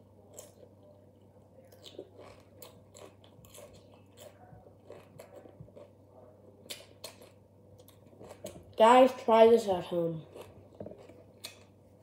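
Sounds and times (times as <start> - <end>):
crunching bell pepper: 1.6 - 6.0.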